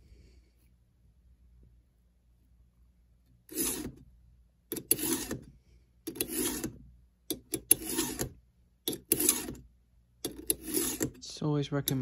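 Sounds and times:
file rasping on saw chain: 3.5 - 4.0, 4.8 - 5.4, 6.1 - 6.8, 7.6 - 8.3, 8.9 - 9.6, 10.3 - 11.2
short file scrapes: 3.5 - 4.0, 4.7 - 5.5, 6.1 - 6.8, 7.6 - 9.6, 10.3 - 11.2.

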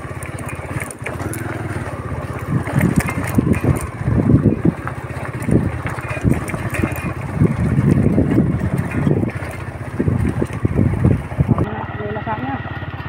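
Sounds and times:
wind buffeting microphone: 0.0 - 11.7
vehicle engine running: 0.0 - 13.0.

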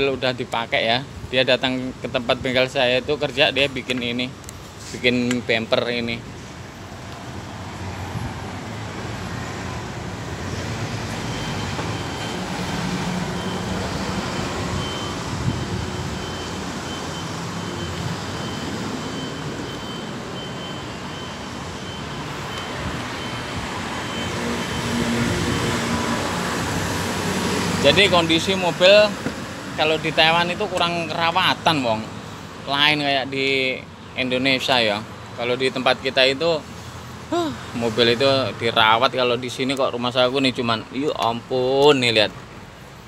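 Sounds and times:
street traffic noise: 0.0 - 43.0
vehicle engine: 6.2 - 32.6.

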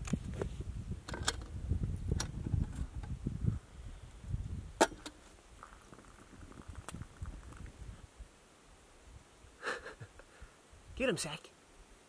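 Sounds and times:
low uneven rumble: 0.6 - 8.2.

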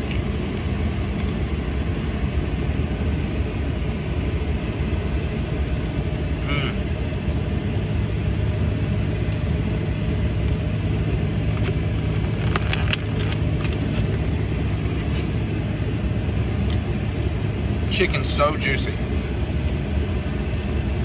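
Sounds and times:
car idling hum: 0.0 - 21.0
clicks and rustles: 11.6 - 15.4.

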